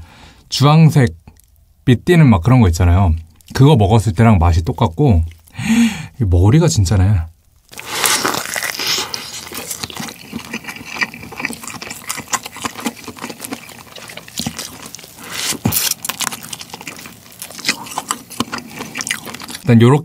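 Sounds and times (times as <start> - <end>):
wet sucking mouth sounds: 7.7 - 19.6.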